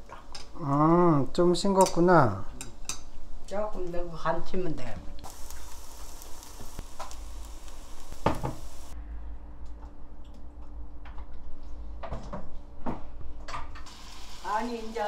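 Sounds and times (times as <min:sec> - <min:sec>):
pancake sizzling in oil: 0:05.2 - 0:09.0, 0:13.9 - 0:15.0
low hum: 0:05.2 - 0:12.8.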